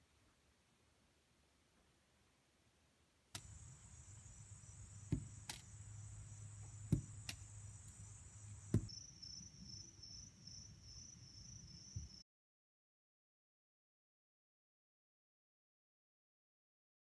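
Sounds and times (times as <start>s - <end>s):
insects droning: 3.4s - 12.2s
ball knocking on catch: 5.0s - 5.7s, 6.6s - 7.4s, 8.7s - 8.9s.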